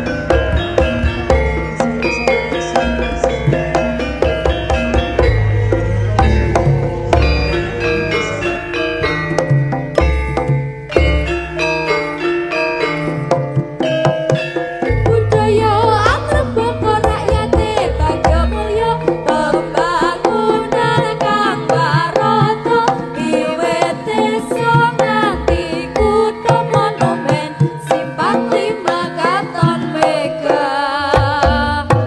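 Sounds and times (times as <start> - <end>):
high wavering melody line: 0.0 - 30.8
hand drum strokes: 0.0 - 32.0
struck metallophone notes: 0.0 - 32.0.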